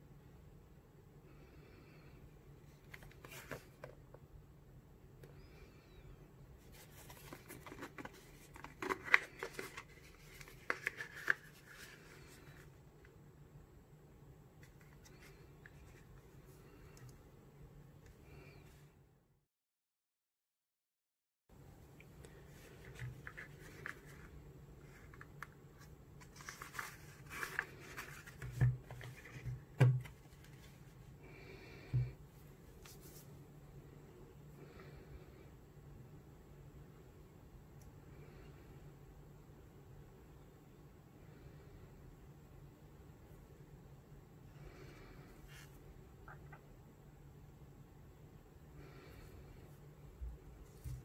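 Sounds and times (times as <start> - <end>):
cardboard box rustling: 6.7 - 12.0.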